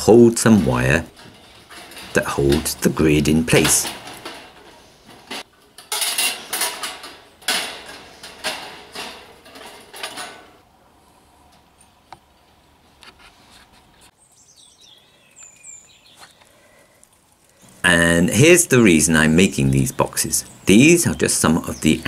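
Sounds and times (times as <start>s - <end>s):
wire scraping against metal grid: 0.0s - 10.6s.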